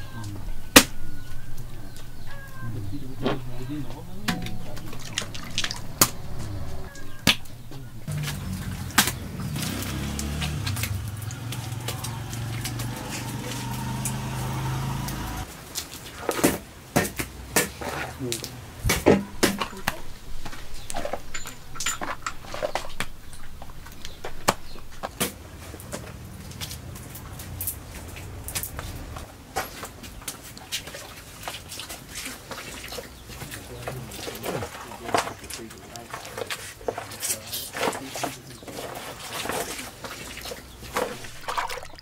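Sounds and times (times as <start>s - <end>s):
sticky mass sloshing in metal basin: 1.4s - 15.1s, 30.5s - 42.0s
sharp knocks: 4.2s - 9.8s.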